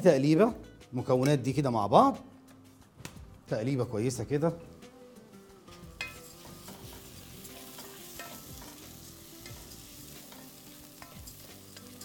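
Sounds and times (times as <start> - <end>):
rice sizzling in a pot: 5.2 - 12.0.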